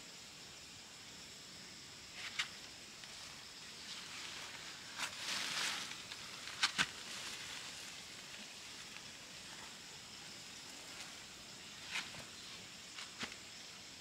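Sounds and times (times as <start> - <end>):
leafy plant cuttings rustling: 3.8 - 9.1.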